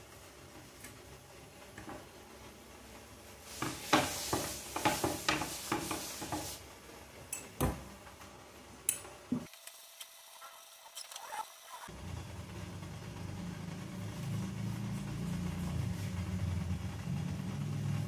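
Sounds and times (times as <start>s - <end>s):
spatula scraping a griddle: 3.5s - 6.6s.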